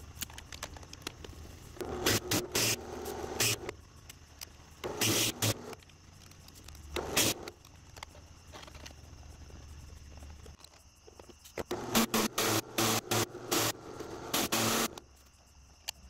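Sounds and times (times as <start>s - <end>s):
drill press motor running: 1.8s - 3.7s, 4.8s - 5.8s, 7.0s - 7.5s, 11.7s - 15.0s
drill bit chattering on steel: 11.6s - 15.0s.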